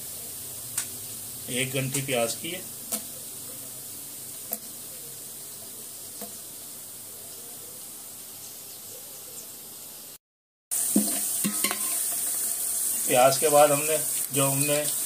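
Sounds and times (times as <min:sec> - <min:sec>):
onions sizzling in hot oil: 0:00.0 - 0:07.1, 0:09.7 - 0:15.0
spoon stirring through oil: 0:10.8 - 0:13.2.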